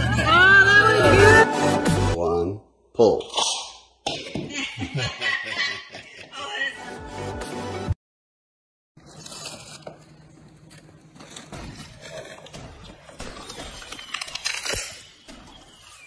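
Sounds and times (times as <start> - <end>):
paper crinkling and rustling: 9.0 - 16.0.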